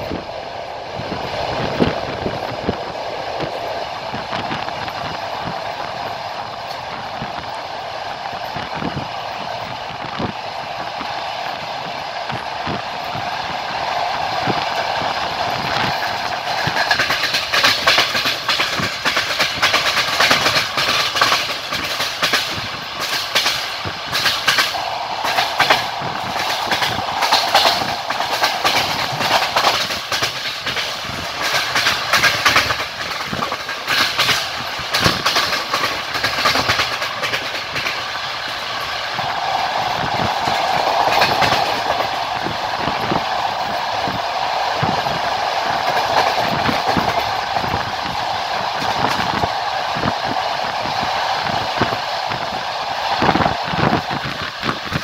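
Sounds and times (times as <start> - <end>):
train wheels clattering over rail joints: 15.4 - 44.2, 44.8 - 47.9.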